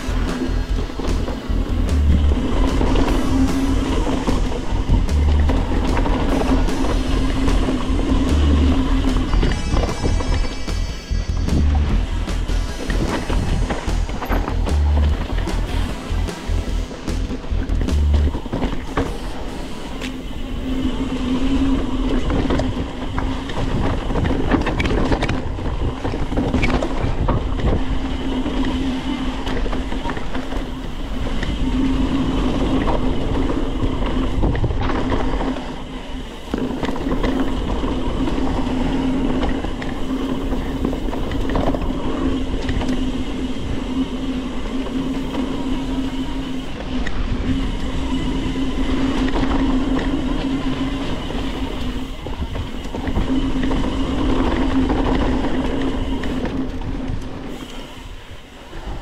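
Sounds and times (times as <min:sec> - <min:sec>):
bike tyres rolling on dirt: 0:00.0 - 0:09.6, 0:11.7 - 0:59.0
bike rattling and knocking: 0:00.0 - 0:09.9, 0:11.3 - 0:19.2, 0:22.0 - 0:31.6
steady buzz: 0:00.0 - 0:20.6.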